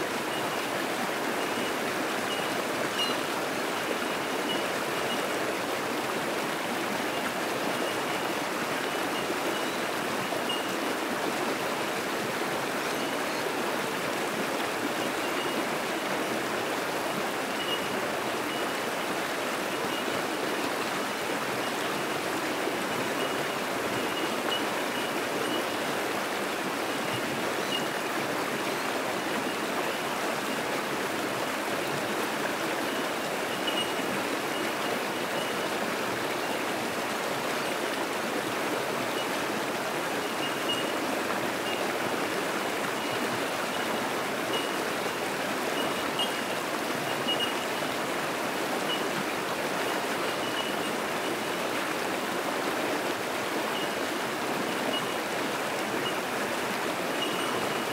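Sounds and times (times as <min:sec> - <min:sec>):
creek rushing over rocks: 0:00.0 - 0:57.9
high bell-like bird notes: 0:02.3 - 0:03.3.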